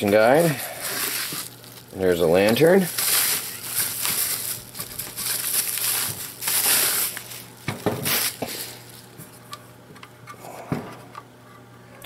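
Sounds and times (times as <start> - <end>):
bubble wrap bag crinkling: 0.0 - 9.4.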